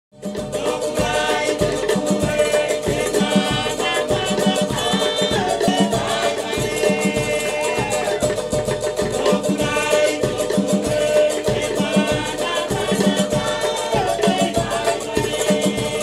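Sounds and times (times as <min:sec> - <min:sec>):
upbeat latin-style music: 0:00.1 - 0:16.0.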